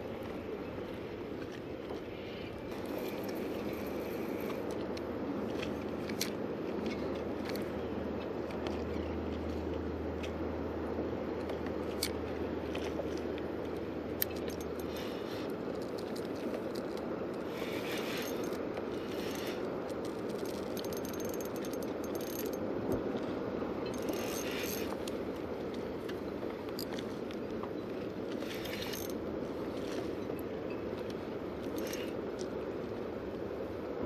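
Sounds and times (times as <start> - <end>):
fishing reel clicking and ratcheting: 17.7 - 22.6, 23.9 - 25.0, 28.5 - 29.2.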